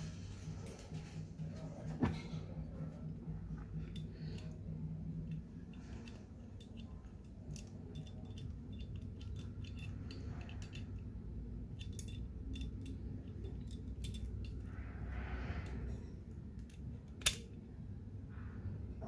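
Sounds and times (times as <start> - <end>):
low steady hum: 0.0 - 19.0
small gun parts clicking: 11.8 - 14.6, 16.6 - 17.5.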